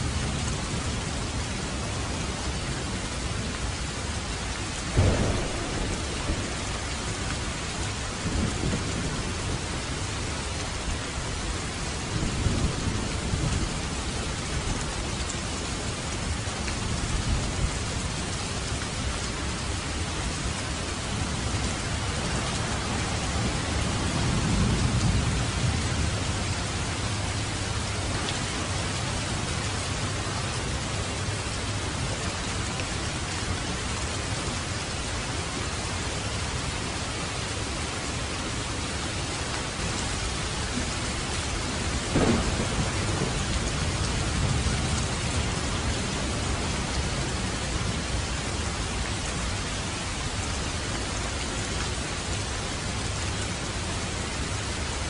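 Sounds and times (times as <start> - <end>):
heavy rain pouring: 0.0 - 55.0
thunder rumbling: 4.7 - 32.1, 39.7 - 49.0
sharp thunder clap: 5.0 - 9.3, 42.1 - 45.1.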